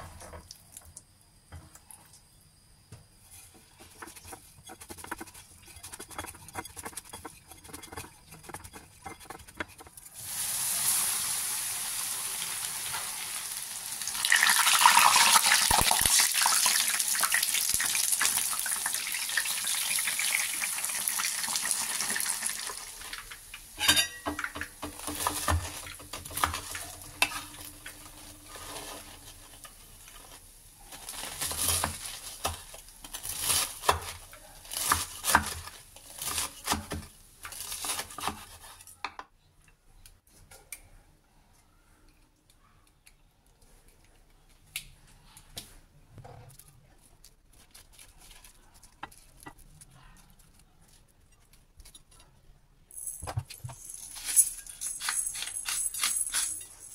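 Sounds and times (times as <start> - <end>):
cutlet sizzling in hot oil: 10.0 - 32.5.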